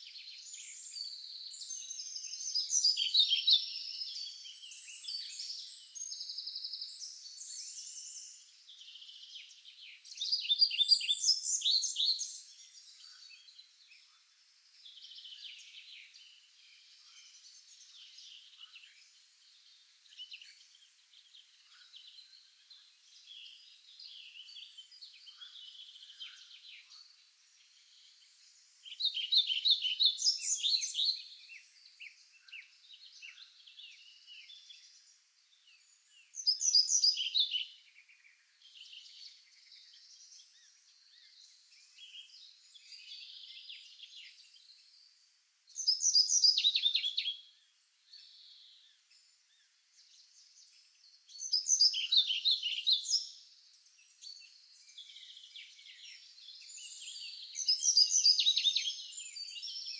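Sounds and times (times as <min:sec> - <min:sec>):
songbird singing rapid phrase: 0:00.2 - 0:59.9.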